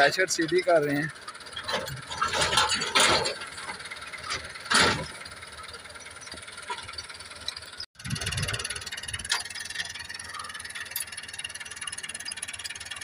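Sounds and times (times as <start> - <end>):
machinery rattling and clanking: 0.0 - 13.0
tractor engine running: 0.0 - 13.0.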